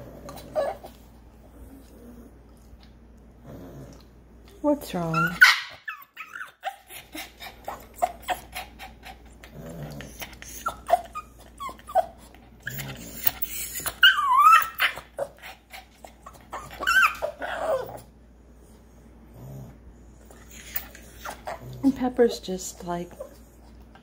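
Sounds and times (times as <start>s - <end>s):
dog grunts: 0.0s - 0.9s, 3.4s - 4.1s, 6.6s - 12.0s
dog whining and whimpering: 0.0s - 1.0s, 5.0s - 18.2s, 20.3s - 21.8s.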